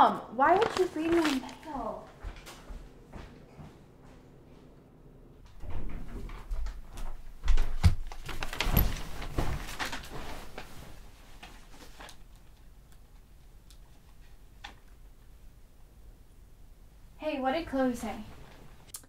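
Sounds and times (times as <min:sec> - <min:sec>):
bedding rustling: 0:00.4 - 0:04.8, 0:05.5 - 0:12.8
footsteps: 0:00.5 - 0:11.6.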